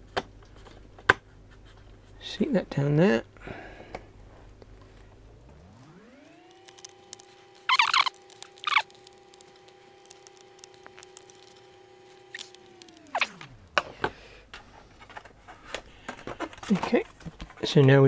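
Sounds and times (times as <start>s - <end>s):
faint hum: 0.0s - 18.0s
screwdriver scraping rasps: 6.5s - 13.4s.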